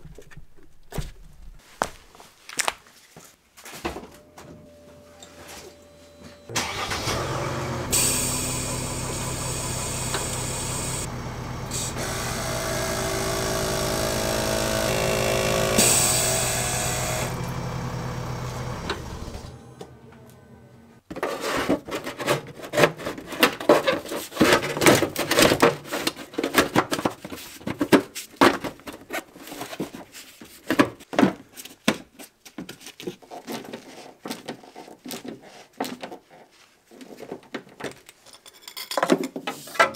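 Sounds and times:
air compressor humming and whining: 0:04.2 - 0:21.0.

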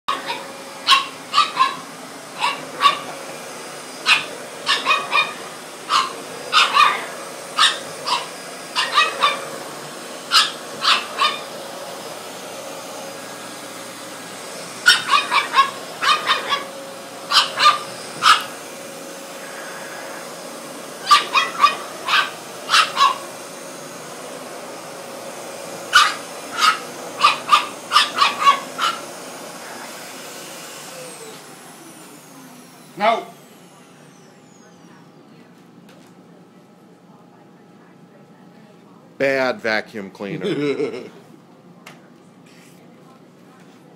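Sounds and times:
puppy barking: 0:00.1 - 0:03.2, 0:04.0 - 0:09.6, 0:10.3 - 0:11.6, 0:14.8 - 0:18.6, 0:21.0 - 0:23.4, 0:25.8 - 0:29.2
upright vacuum cleaner humming: 0:00.1 - 0:43.9.

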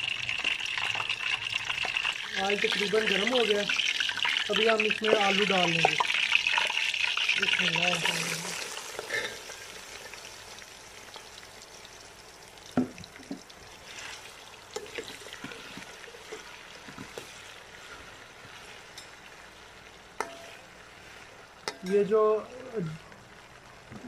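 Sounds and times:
potatoes frying in oil: 0:00.0 - 0:24.0
steel spoon clinking against pot: 0:20.2 - 0:20.6, 0:21.7 - 0:22.0.

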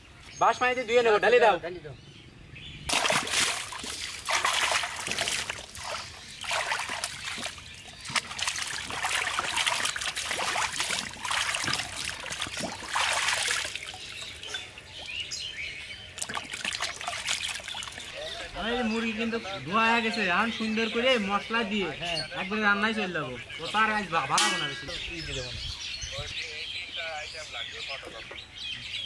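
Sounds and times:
water splashing in a basin: 0:02.9 - 0:15.2, 0:16.0 - 0:18.2
water sloshing and dribbling: 0:02.9 - 0:18.6.

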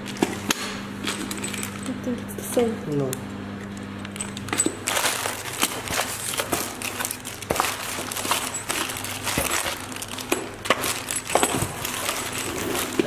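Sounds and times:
plastic bags crinkling: 0:01.0 - 0:02.1, 0:04.1 - 0:13.0
cardboard box rustling: 0:04.8 - 0:13.0.

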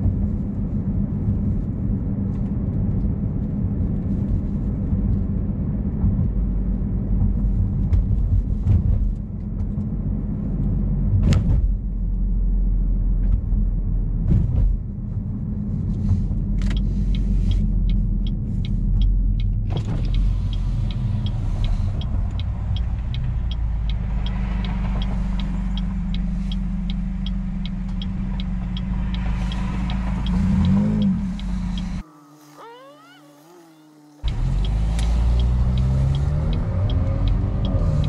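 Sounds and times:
car engine droning: 0:00.0 - 0:38.0
turn signal ticking: 0:15.9 - 0:38.0.

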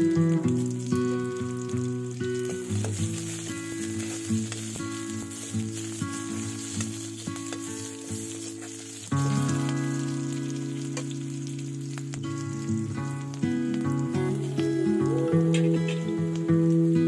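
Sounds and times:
onions sizzling in oil: 0:00.0 - 0:17.0
background music of held notes: 0:13.3 - 0:17.0.

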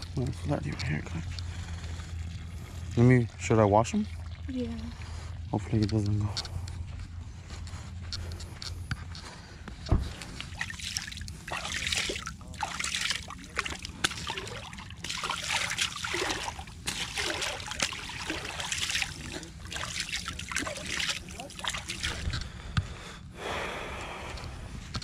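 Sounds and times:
shallow water sloshing around feet: 0:10.0 - 0:22.4.

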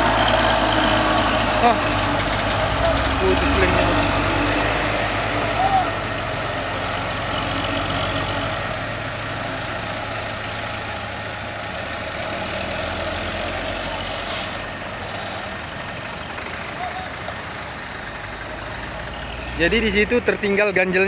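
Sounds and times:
diesel truck engine under load: 0:00.0 - 0:21.0.

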